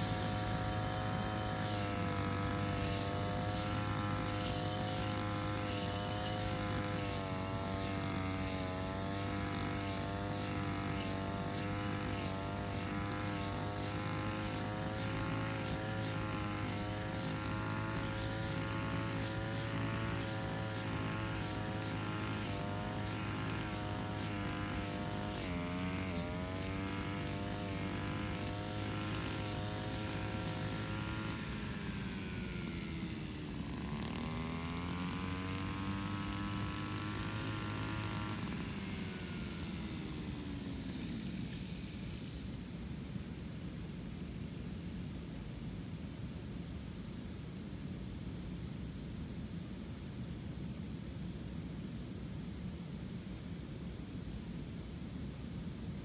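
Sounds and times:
brush cutter engine running: 0.0 - 42.4.

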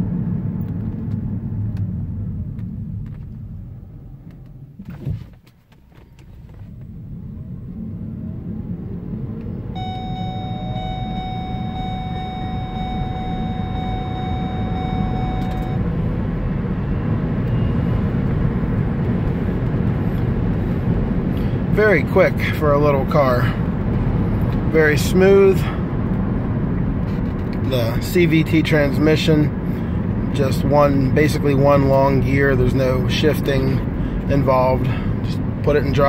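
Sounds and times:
tyre and road noise rumbling: 0.0 - 36.0
steady high tone: 9.7 - 15.9.

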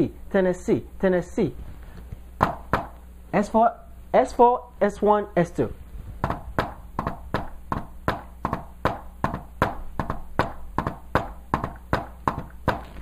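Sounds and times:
hand tapping on whiteboard: 2.4 - 3.0, 6.2 - 12.9.

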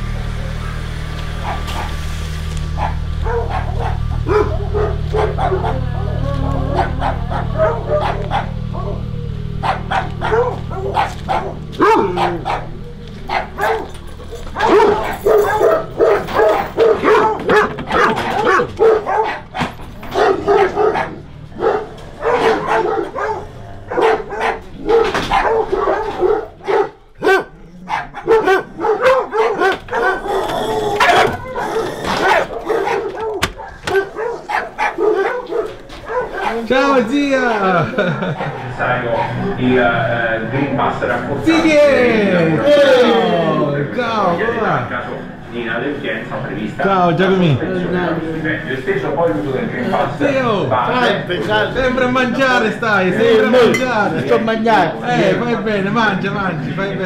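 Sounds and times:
dog barking: 1.4 - 2.0, 2.6 - 36.7, 38.0 - 39.6.

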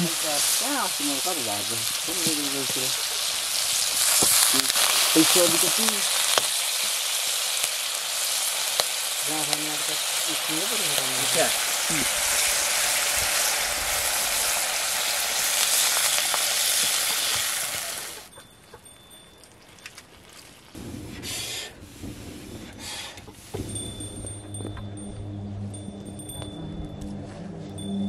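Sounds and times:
food sizzling in oil: 0.0 - 18.4
faint crackles: 0.0 - 24.8.

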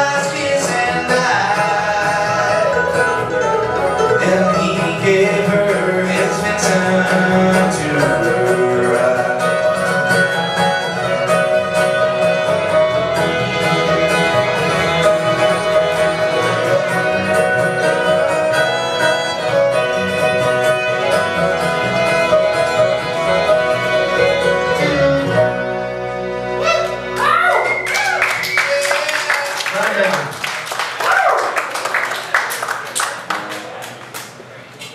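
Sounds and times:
strummed acoustic guitar: 0.0 - 27.1
fiddle: 0.0 - 27.6
upright bass: 0.0 - 29.1.

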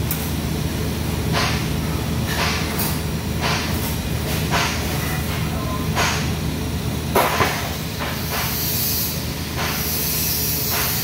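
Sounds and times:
welding arc hissing: 7.2 - 11.0.

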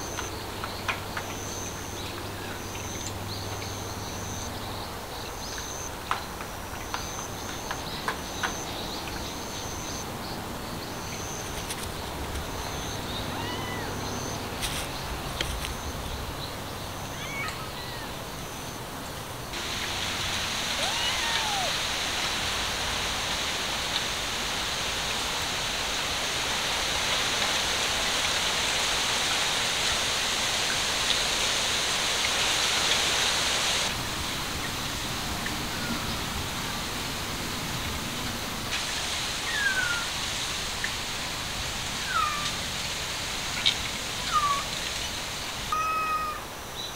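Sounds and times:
steady hiss: 0.0 - 46.9
cat mewing faintly: 13.3 - 14.0, 20.8 - 21.8, 45.7 - 46.5.

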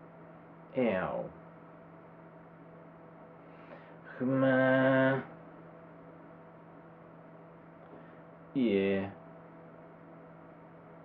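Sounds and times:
man imitating cat call: 4.2 - 5.3.

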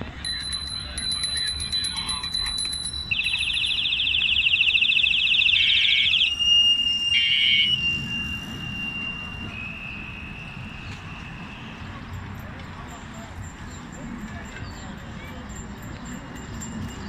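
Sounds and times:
bicycle bells ringing: 0.0 - 17.0.

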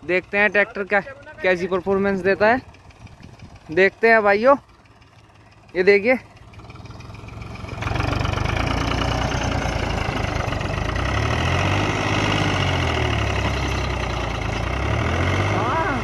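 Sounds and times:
tractor diesel engine under load: 0.0 - 16.0.

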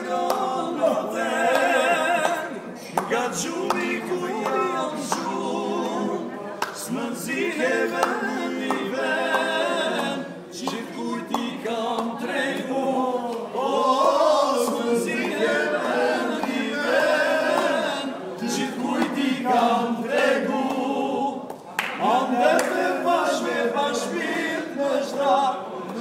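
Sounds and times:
men singing together: 0.0 - 26.0.

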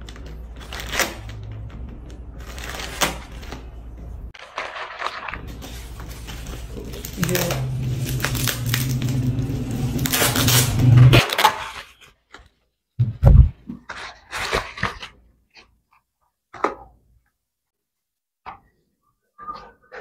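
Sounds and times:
plastic bag rustling: 4.4 - 11.5
bubble wrap crinkling by hand: 4.4 - 12.0
steady low hum: 5.8 - 11.2.

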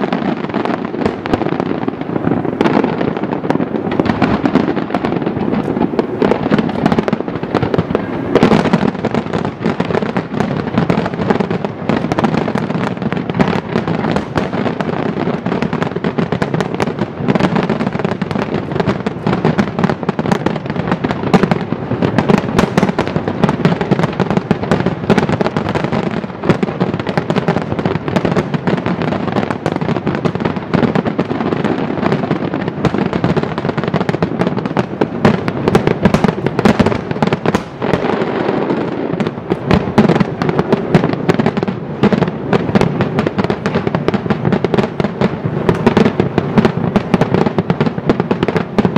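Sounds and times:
fireworks booming and crackling: 0.0 - 48.9.

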